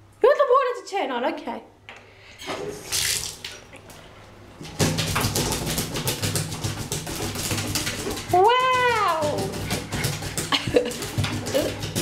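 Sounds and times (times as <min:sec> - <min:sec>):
claws scratching on bathtub: 0:05.1 - 0:12.0.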